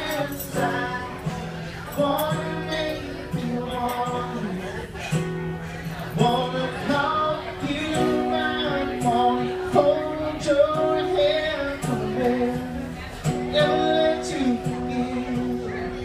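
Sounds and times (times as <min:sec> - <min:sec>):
acoustic guitar strumming: 0:00.0 - 0:16.0
person singing melody: 0:05.9 - 0:16.0.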